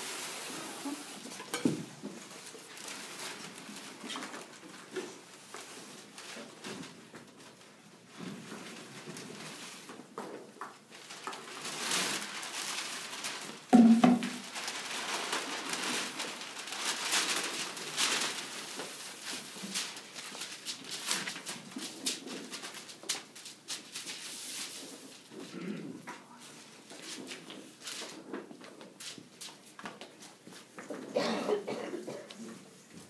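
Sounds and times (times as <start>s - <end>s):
paper rustling and crackling: 0.0s - 25.5s, 26.4s - 31.1s
shuffling feet: 26.1s - 31.2s.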